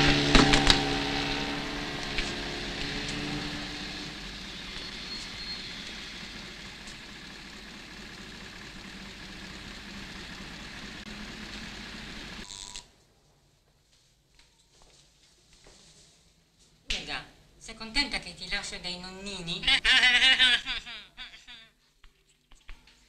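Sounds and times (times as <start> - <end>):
bus engine humming: 0.0 - 12.5
street traffic noise: 0.0 - 12.6.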